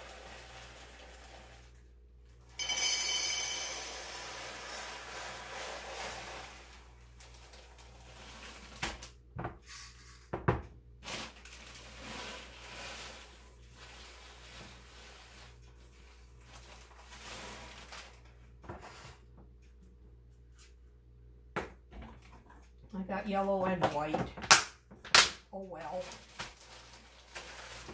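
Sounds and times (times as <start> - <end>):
popcorn kernels rattling: 0.0 - 1.9, 2.6 - 8.8, 26.0 - 27.9.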